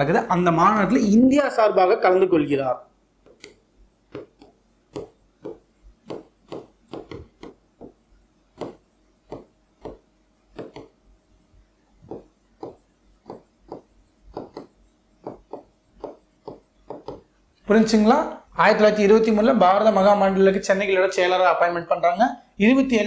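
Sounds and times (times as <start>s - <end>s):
stylus tapping on display board: 3.2s - 11.0s, 12.0s - 17.4s.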